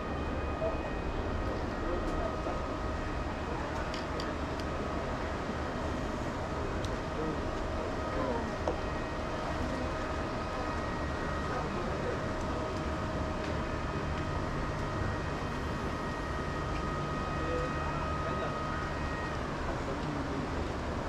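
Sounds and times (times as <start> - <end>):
faint thin whining tones: 13.7 - 21.0.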